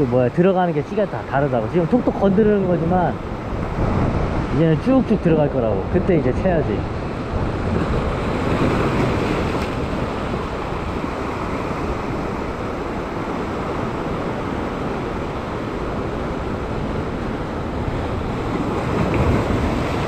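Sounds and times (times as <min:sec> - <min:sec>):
wind on microphone: 0:01.0 - 0:20.0
sea waves washing over rock: 0:06.7 - 0:20.0.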